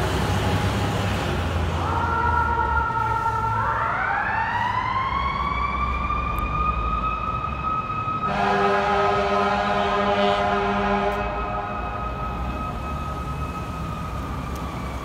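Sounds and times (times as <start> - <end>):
fire engine siren: 0.0 - 15.0
mechanical siren wail: 1.8 - 15.0
air horn blast: 8.3 - 11.8.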